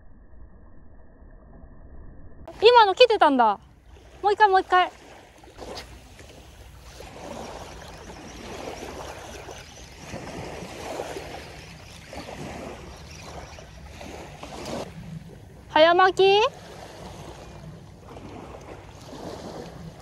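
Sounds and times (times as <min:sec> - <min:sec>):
small waves washing on beach: 0:02.5 - 0:20.0
wind rumble on microphone: 0:05.0 - 0:20.0.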